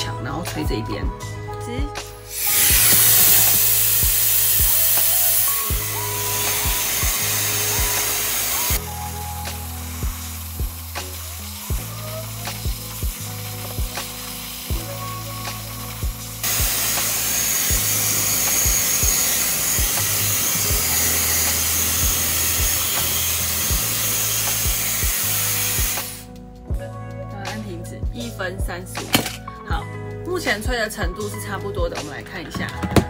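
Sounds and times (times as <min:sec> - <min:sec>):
music with a steady beat: 0:00.0 - 0:33.0
hair dryer blowing: 0:02.3 - 0:26.3.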